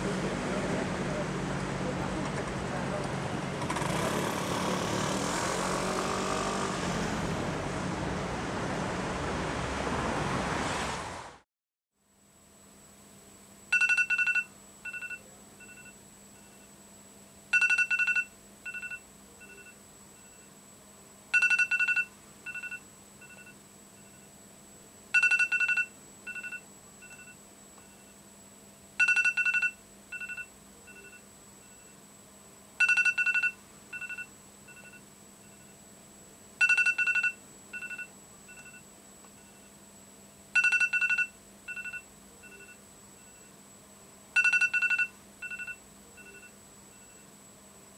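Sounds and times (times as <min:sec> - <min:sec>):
steady low hum: 0:00.0 - 0:03.8
electronic ringtone: 0:13.7 - 0:16.6, 0:17.5 - 0:20.5, 0:21.4 - 0:24.2, 0:25.2 - 0:28.1, 0:29.0 - 0:31.9, 0:32.8 - 0:35.7, 0:36.6 - 0:38.8, 0:40.6 - 0:43.5, 0:44.4 - 0:47.3.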